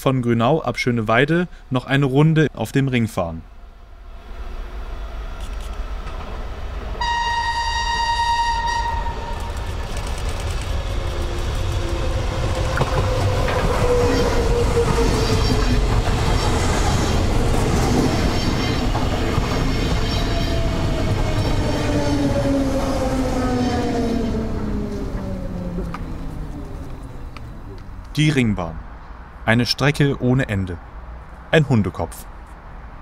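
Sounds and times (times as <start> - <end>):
train rail and wheel noise: 3.4 - 29.4
falling whine: 3.8 - 28.1
train horn tone: 7.0 - 9.8.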